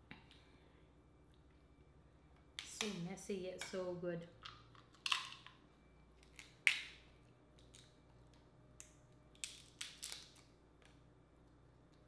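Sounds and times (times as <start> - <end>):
crab shell cracking: 8.8 - 10.9.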